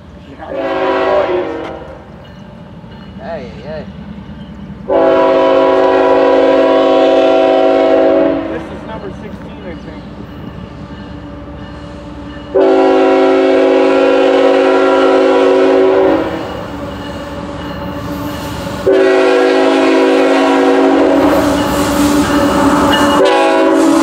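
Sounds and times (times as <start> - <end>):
diesel locomotive rumble: 0.0 - 24.0
train air horn blasts: 0.5 - 2.0, 4.9 - 8.7, 12.5 - 16.6, 18.6 - 24.0.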